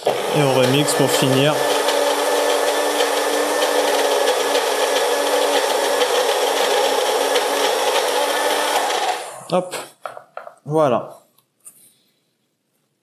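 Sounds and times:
electric blender motor hum: 0.0 - 9.5.

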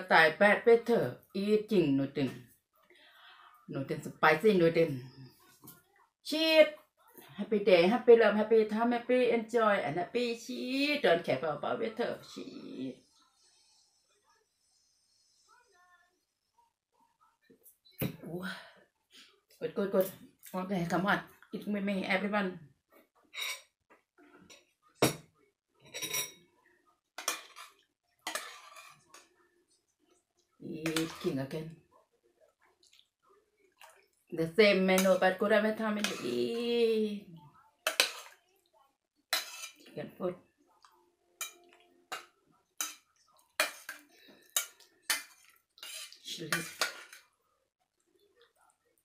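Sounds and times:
metal spoon clinking on saucepan: 25.9 - 26.5, 37.9 - 38.4, 39.4 - 39.8.

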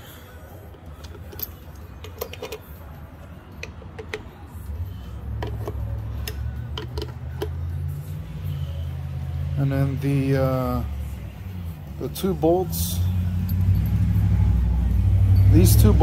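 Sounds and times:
metallic clicks of bolts: 0.8 - 2.8, 3.6 - 4.3, 5.4 - 7.6.

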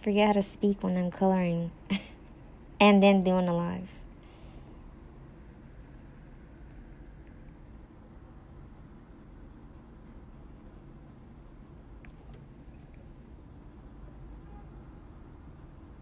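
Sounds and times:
pencil scratching on card: 0.2 - 3.8, 4.8 - 7.3, 8.4 - 12.4, 13.5 - 16.0.

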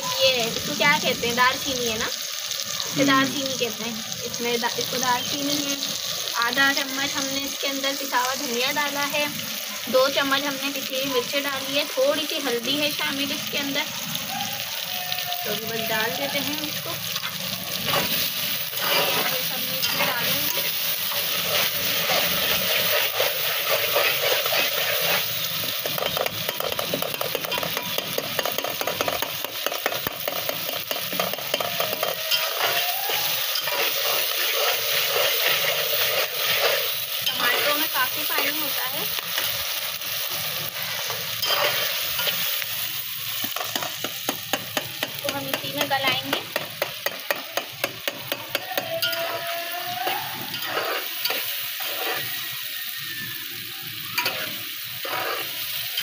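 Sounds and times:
food sizzling in oil: 0.0 - 56.0
metal spatula scraping pot: 17.1 - 39.5, 41.0 - 42.5, 48.5 - 52.4, 54.2 - 56.0.

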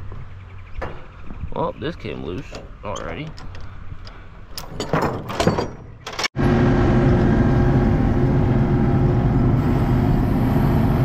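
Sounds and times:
steel chain clanking: 2.3 - 6.3
skid steer engine running: 6.4 - 11.0.

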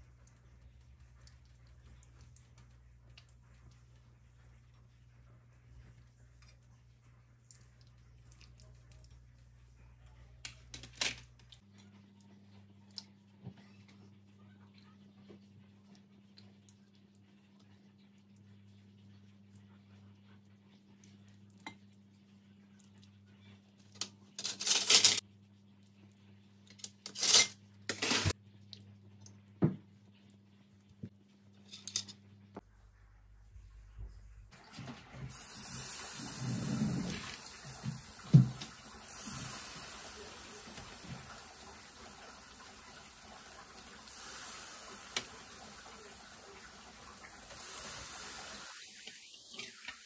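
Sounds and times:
meat sizzling on a grill: 35.3 - 50.0.

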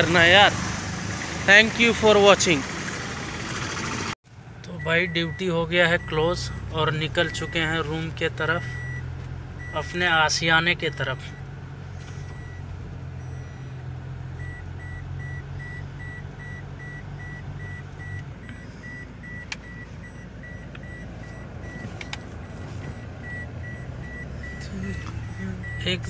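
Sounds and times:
road noise: 0.0 - 26.0
vehicle engine hum: 0.0 - 26.0
electronic warning beeps: 8.6 - 10.0, 12.1 - 12.6, 14.4 - 26.0.

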